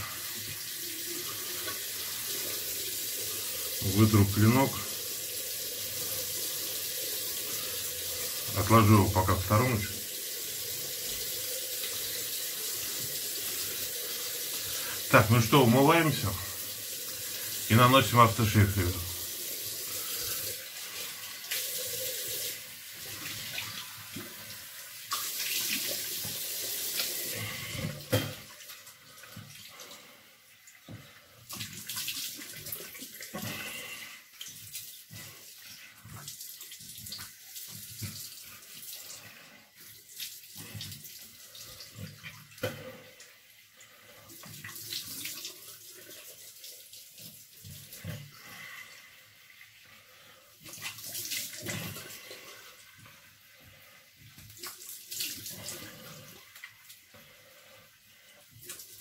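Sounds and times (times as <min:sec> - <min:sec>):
tap water running into sink: 0:00.0 - 0:57.4
splashing water on face: 0:11.0 - 0:30.0.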